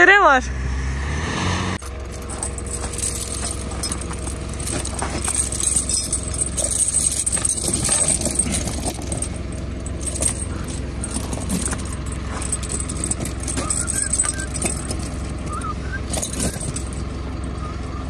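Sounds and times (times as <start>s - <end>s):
metallic clinking and crunching: 1.8s - 18.0s
vehicle engine idling: 1.8s - 18.0s.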